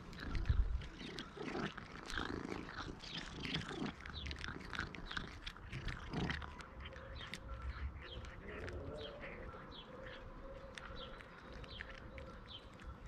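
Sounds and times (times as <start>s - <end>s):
cat purring: 0.0s - 10.4s
cat crunching dry kibble: 0.0s - 13.0s.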